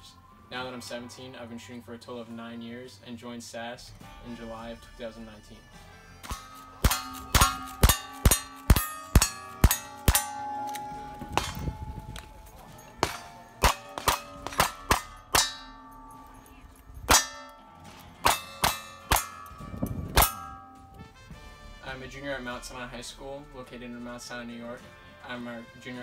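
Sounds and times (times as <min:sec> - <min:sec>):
ringing steel target hits: 0:06.2 - 0:21.1.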